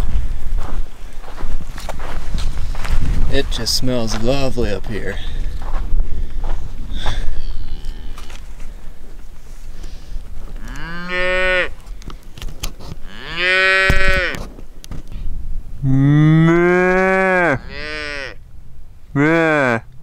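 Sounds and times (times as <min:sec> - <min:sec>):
cattle mooing: 0:07.1 - 0:08.4, 0:10.6 - 0:11.7, 0:13.0 - 0:14.4, 0:15.8 - 0:18.4, 0:19.2 - 0:19.9.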